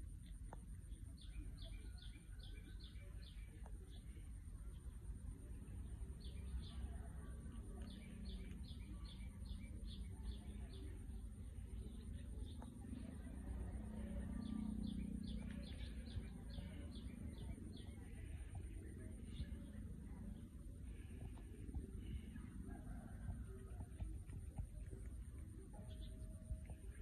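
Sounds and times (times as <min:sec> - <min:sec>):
faint high whine: 0:00.0 - 0:27.0
low background rumble: 0:00.0 - 0:27.0
bird chirping: 0:07.7 - 0:23.3.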